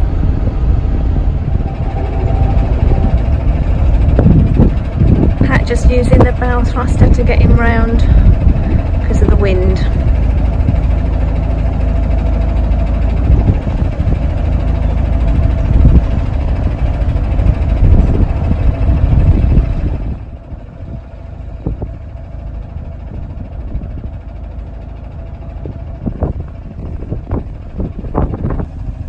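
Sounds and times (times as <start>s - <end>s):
bow thruster rumbling: 0.0s - 20.6s
boat engine running: 0.0s - 29.0s.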